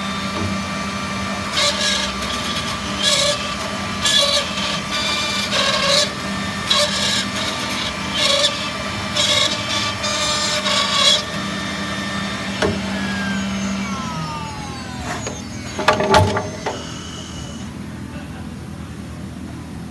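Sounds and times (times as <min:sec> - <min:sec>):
router spindle cutting wood: 0:00.0 - 0:17.8
machine clunks: 0:15.0 - 0:17.0.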